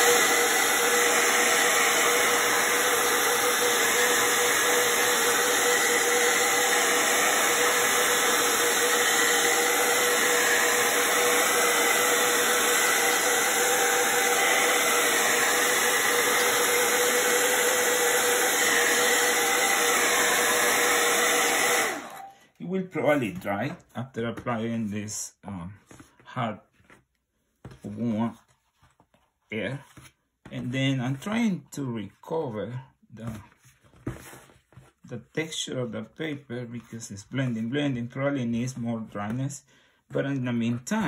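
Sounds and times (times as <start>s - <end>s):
hair dryer running: 0.0s - 22.4s.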